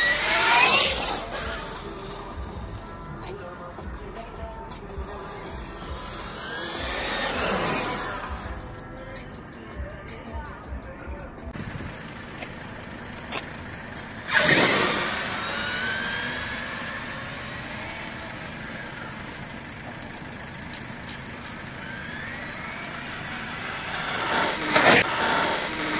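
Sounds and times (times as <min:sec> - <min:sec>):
electric motor whine: 0:00.0 - 0:02.7, 0:05.1 - 0:08.8, 0:13.2 - 0:25.9
loud burst of noise: 0:21.9 - 0:25.9.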